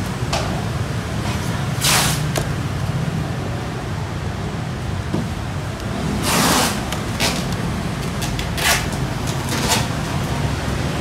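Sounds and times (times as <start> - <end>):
street traffic rumble: 0.0 - 11.0
sharp scraping noises: 6.2 - 7.5, 8.2 - 9.9.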